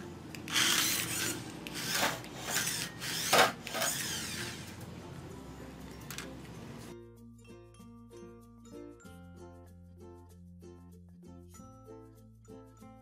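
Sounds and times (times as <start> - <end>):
toy car motor whirring: 0.5 - 4.7.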